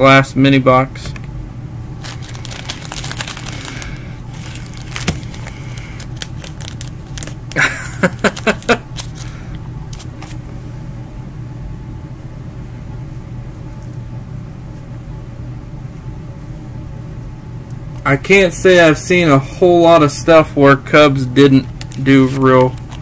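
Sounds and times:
low hum: 0:00.0 - 0:18.6
plastic sleeves crinkling: 0:02.0 - 0:10.4, 0:21.6 - 0:23.0.

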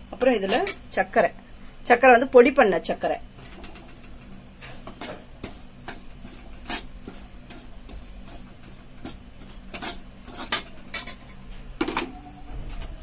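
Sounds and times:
spoon scraping metal pan: 0:04.9 - 0:11.4.

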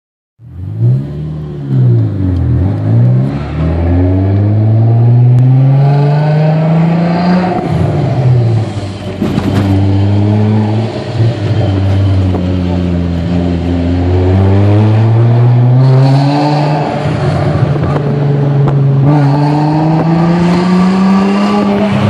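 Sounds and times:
car engine revving: 0:00.5 - 0:22.0.

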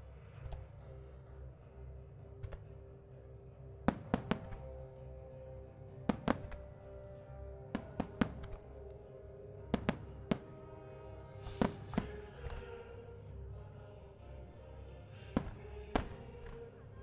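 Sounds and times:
music playing: 0:00.0 - 0:17.0
fireworks bangs: 0:03.9 - 0:04.7, 0:06.1 - 0:06.7, 0:07.8 - 0:08.7, 0:09.8 - 0:10.8, 0:11.4 - 0:12.6, 0:15.4 - 0:16.3.

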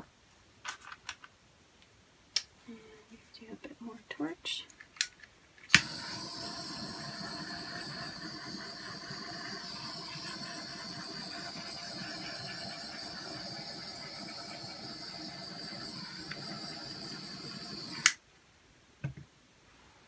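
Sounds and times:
torch flame hissing: 0:05.7 - 0:18.2.

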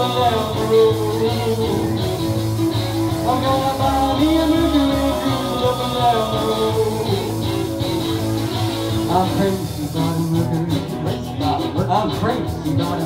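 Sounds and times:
man singing: 0:00.0 - 0:08.0, 0:08.9 - 0:13.0
electric guitar: 0:00.0 - 0:13.0
upright bass: 0:00.0 - 0:13.0.

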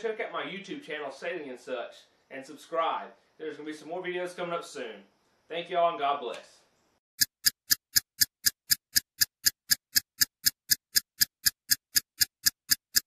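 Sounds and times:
steady ticking: 0:07.2 - 0:13.0.

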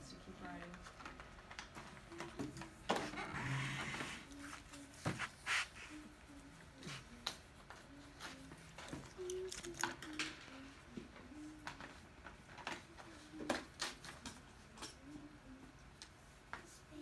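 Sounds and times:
pencils tapping on tabletops: 0:00.6 - 0:03.2, 0:07.0 - 0:15.2
child's faint voice: 0:02.1 - 0:11.9, 0:16.6 - 0:17.0.

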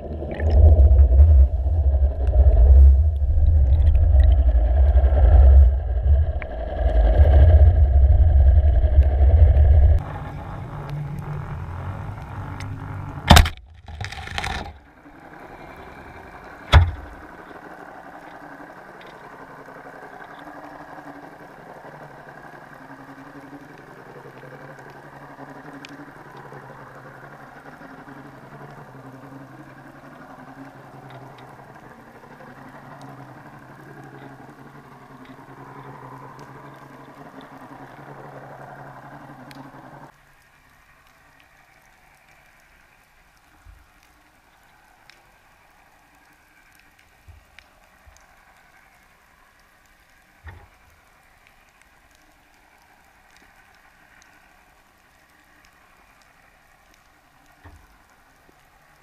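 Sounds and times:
muffled underwater boat engine drone: 0:00.0 - 0:59.0
sharp knocks: 0:16.7 - 0:17.1.

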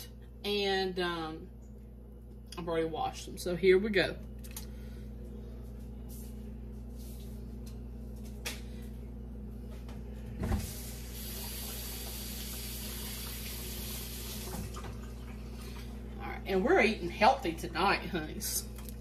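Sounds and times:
steady low hum: 0:00.0 - 0:19.0
water running from tap: 0:10.6 - 0:15.9.

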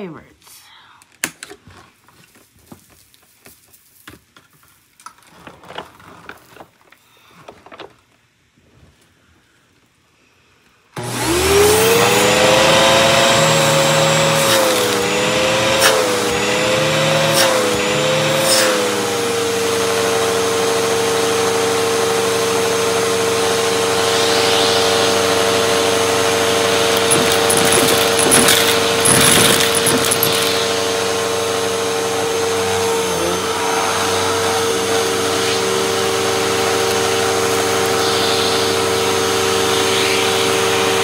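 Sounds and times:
handling knocks and rustles: 0:01.4 - 0:08.1, 0:26.9 - 0:30.6
vacuum motor whine: 0:11.0 - 0:41.0.

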